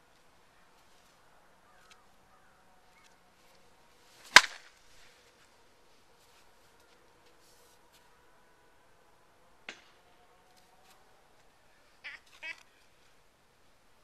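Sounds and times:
bat cracking a ball: 4.2s - 4.8s, 9.7s - 10.0s.

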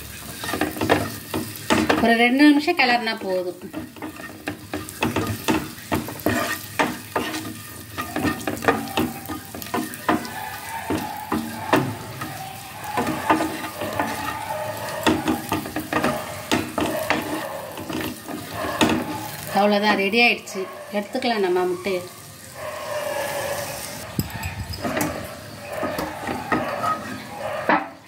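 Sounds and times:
eggs sizzling in hot oil: 0.0s - 28.0s
wooden spatula knocking pan: 0.4s - 19.5s.

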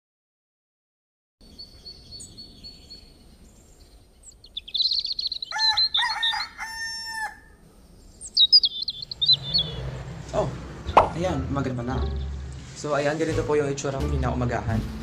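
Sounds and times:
small birds chirping: 1.4s - 12.8s
rooster crowing: 5.4s - 7.7s.

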